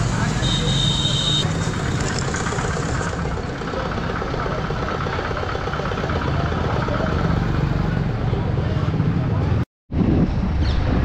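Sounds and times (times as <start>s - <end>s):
motorcycle engine running: 0.0s - 9.3s.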